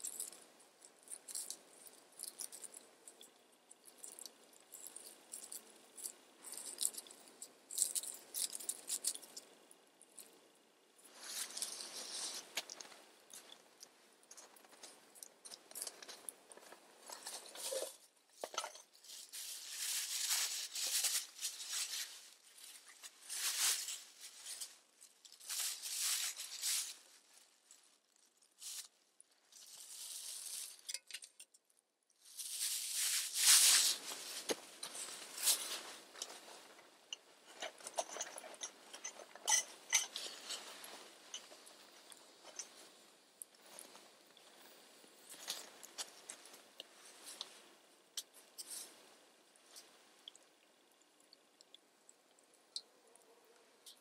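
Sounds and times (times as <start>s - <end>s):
footsteps crunching in snow: 32.3s - 36.6s.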